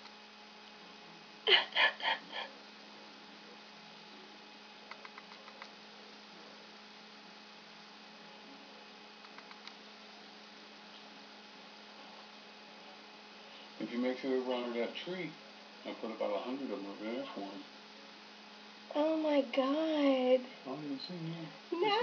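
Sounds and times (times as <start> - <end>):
faint low hum: 0.0 - 22.0
soft hiss: 2.7 - 22.0
quick soft clicks: 4.9 - 5.8, 9.2 - 9.8.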